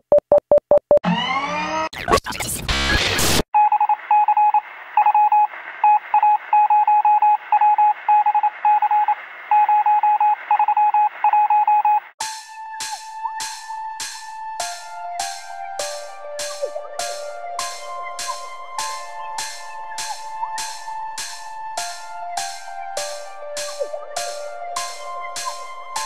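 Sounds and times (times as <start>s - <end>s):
electronic music with sharp beats: 12.2s - 26.0s.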